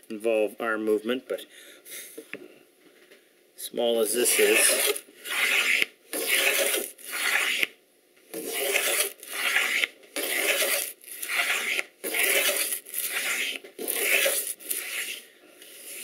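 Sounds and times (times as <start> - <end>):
hand plane rasping on wood: 4.3 - 7.7, 8.4 - 15.2.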